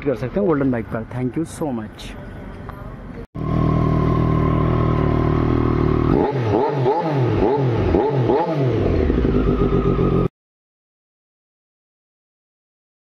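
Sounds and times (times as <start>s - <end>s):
motorcycle engine idling: 3.4s - 6.7s, 8.8s - 10.3s.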